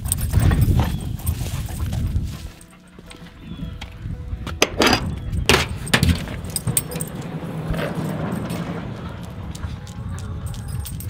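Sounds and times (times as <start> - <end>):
metal jingling and clinking: 0.0 - 3.3, 4.8 - 11.0
low handling rumble: 3.2 - 11.0.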